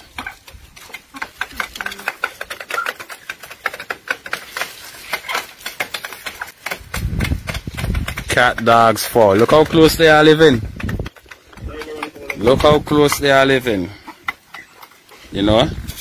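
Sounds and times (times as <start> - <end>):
animals crunching rice: 0.0 - 16.0
beaks pecking on metal sheet: 0.0 - 16.0.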